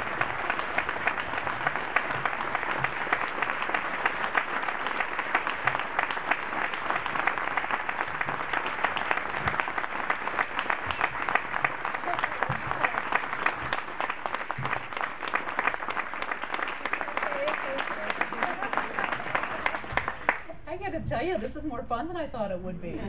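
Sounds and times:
crowd applauding: 0:00.0 - 0:20.5.

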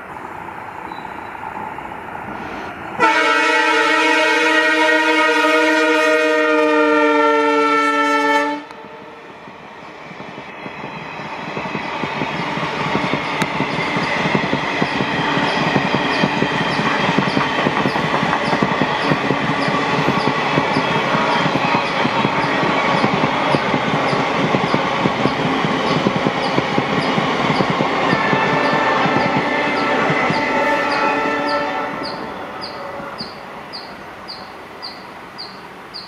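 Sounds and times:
diesel locomotive horn blast: 0:03.0 - 0:09.2, 0:28.0 - 0:33.3
train wheels clattering over rail joints: 0:10.1 - 0:30.5.

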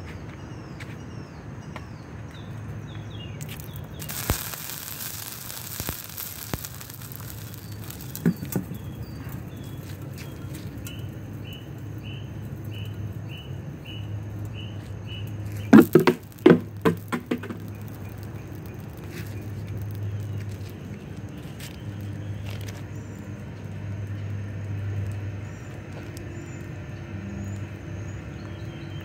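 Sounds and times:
fire hissing and crackling: 0:03.2 - 0:28.4
sharp firework bangs: 0:03.5 - 0:09.8, 0:15.7 - 0:20.3.

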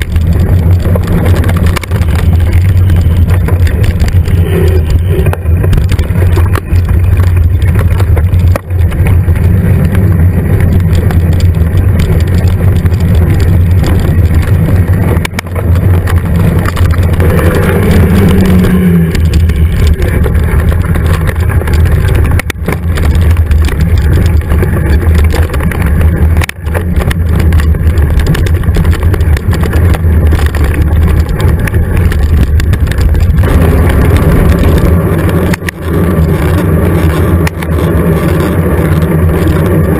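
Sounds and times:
bike riding noise on dirt trail: 0:00.0 - 0:39.9
wind rumble: 0:00.0 - 0:39.9.

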